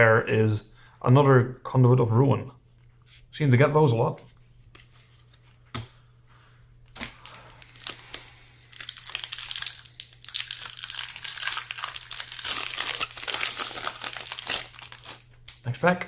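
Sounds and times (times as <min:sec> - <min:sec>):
foil wrapper crinkling: 0:07.0 - 0:15.8.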